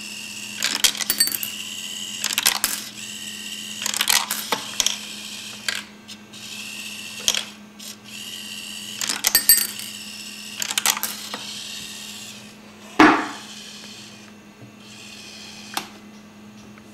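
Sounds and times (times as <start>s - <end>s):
steady low hum: 12.2s - 16.9s
loud thump: 13.0s - 13.4s.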